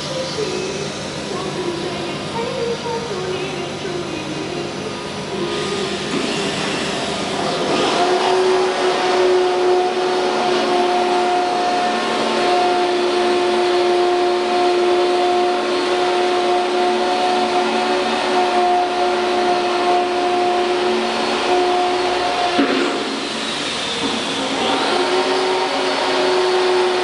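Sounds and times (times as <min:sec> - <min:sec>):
router machinery droning: 0:00.0 - 0:27.0.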